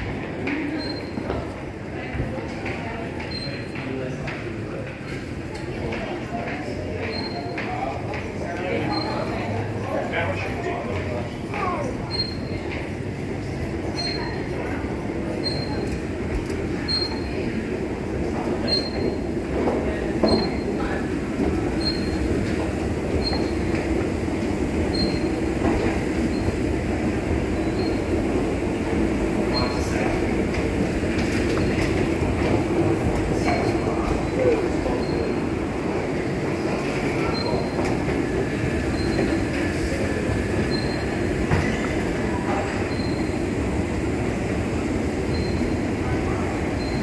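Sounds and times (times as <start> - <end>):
short high squeak: 40.7 - 41.0.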